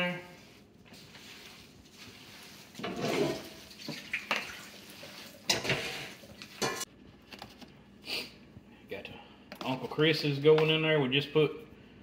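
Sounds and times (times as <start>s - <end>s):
hands squishing food mixture: 0.0s - 6.6s.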